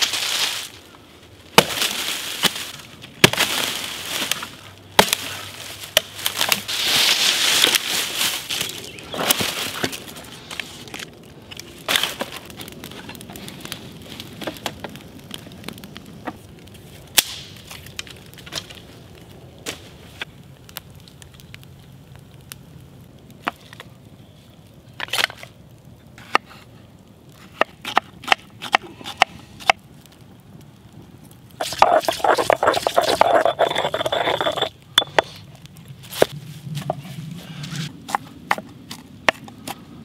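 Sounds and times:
campfire crackling and popping: 0:00.0 - 0:40.0.

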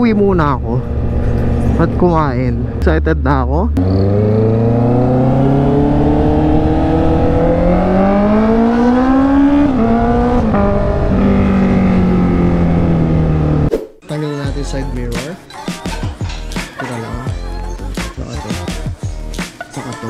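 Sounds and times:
motorcycle engine accelerating: 0:00.3 - 0:13.7.

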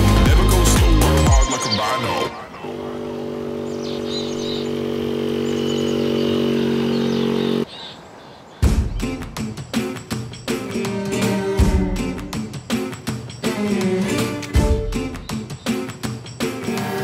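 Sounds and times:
electronic music: 0:00.0 - 0:07.6
faint birdsong: 0:01.4 - 0:09.8, 0:14.9 - 0:16.2
moped engine running: 0:02.6 - 0:07.7.

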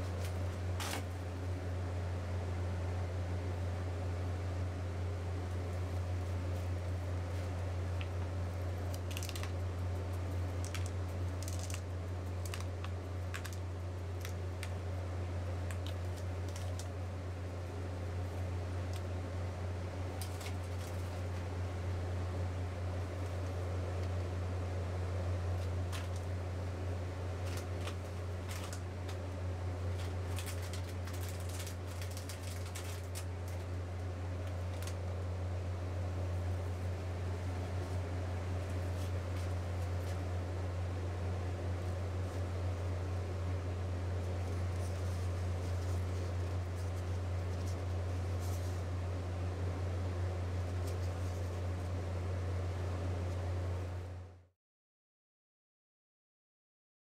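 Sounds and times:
ice cream machine hum: 0:00.0 - 0:54.5
small clicks and crackles: 0:05.4 - 0:19.1, 0:20.0 - 0:21.5, 0:25.5 - 0:26.4, 0:27.3 - 0:35.2, 0:44.2 - 0:49.0, 0:50.5 - 0:52.0.

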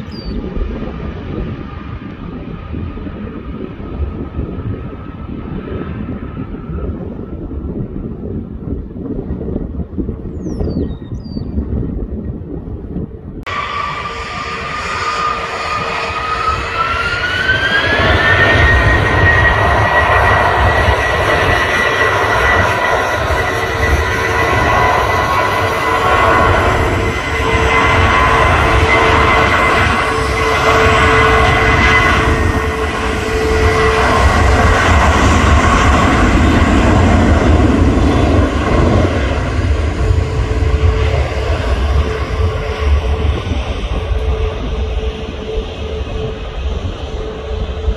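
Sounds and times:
low rumble: 0:00.0 - 0:47.9
jet engines whining: 0:13.3 - 0:47.9.

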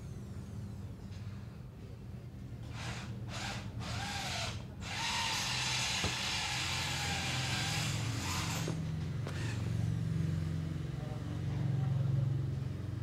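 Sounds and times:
low engine-like hum: 0:00.0 - 0:02.7, 0:07.5 - 0:13.0
power tool whirring: 0:02.7 - 0:09.8.

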